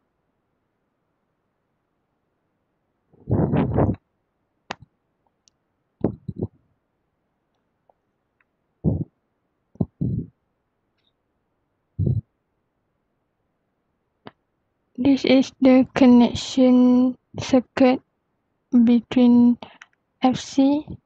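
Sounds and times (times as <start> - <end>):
microphone handling thumps and clicks: 3.2 - 4.0, 6.0 - 6.6, 8.8 - 9.1, 9.8 - 10.3, 12.0 - 12.2.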